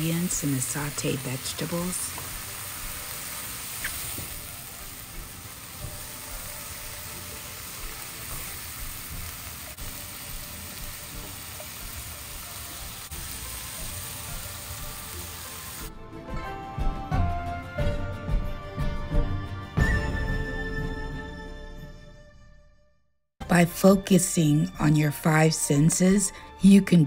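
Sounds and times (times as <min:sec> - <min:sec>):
vegetables sizzling in frying pan: 0:00.0 - 0:15.9
soft background music: 0:00.0 - 0:22.2, 0:23.4 - 0:27.0.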